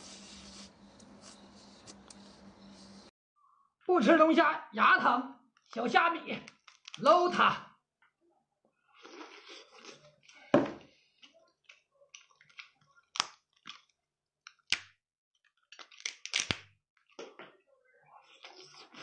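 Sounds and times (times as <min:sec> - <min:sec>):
lobster shell cracking: 0:15.8 - 0:16.6.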